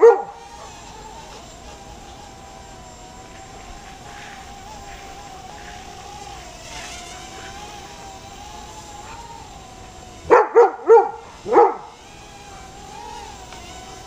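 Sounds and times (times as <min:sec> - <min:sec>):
dog barking: 0:00.0 - 0:00.8, 0:09.0 - 0:09.3, 0:10.3 - 0:11.9
drone propellers whining: 0:00.0 - 0:14.0.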